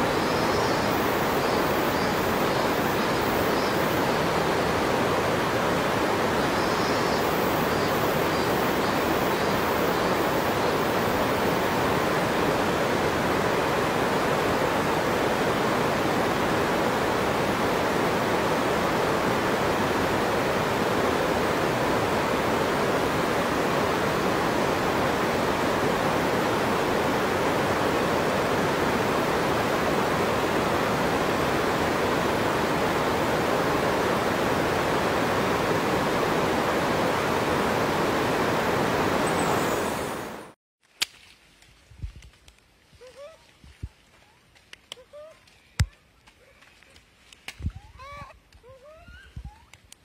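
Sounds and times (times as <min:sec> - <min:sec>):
water rushing: 0:00.0 - 0:40.6.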